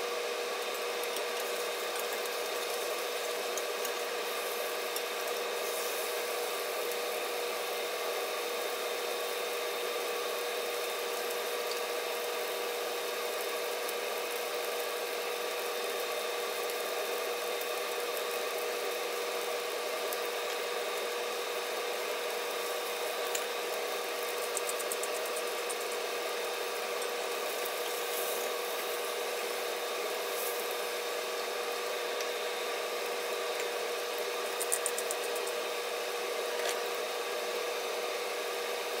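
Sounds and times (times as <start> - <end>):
constant hum with tones: 0.0 - 39.0
steak sizzling in a skillet: 0.6 - 9.6, 10.2 - 32.0.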